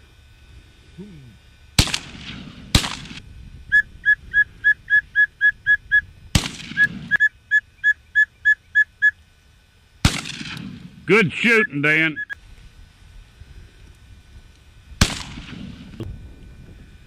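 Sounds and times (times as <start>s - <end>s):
shotgun shots with echo: 1.8s - 3.2s, 6.3s - 7.1s, 10.0s - 11.0s, 15.0s - 16.0s.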